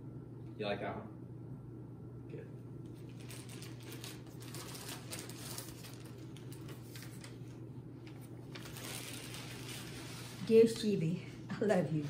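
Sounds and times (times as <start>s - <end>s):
steady low hum: 0.0s - 12.0s
paper crackling and rustling: 2.9s - 10.9s.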